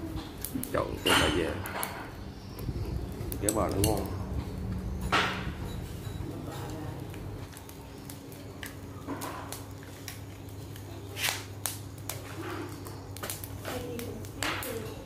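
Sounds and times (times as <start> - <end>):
steady low hum: 0.0 - 14.4
chopsticks scraping grill rack: 0.2 - 2.2, 2.9 - 7.2.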